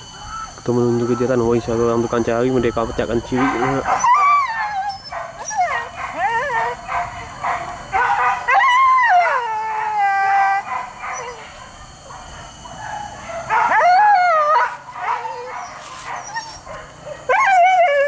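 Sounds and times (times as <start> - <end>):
dogs howling: 0.0 - 18.0
dog whimpers and yips: 0.2 - 1.3, 3.4 - 6.9, 8.5 - 11.5, 12.7 - 18.0.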